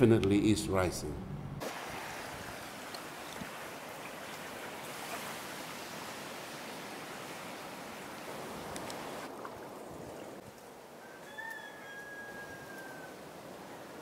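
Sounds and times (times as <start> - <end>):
gentle waves washing on beach: 1.6 - 10.6.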